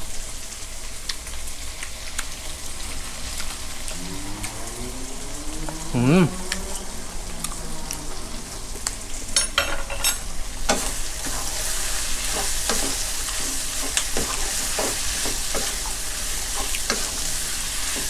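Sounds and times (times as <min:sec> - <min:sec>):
meat and onions sizzling: 0:10.2 - 0:18.0.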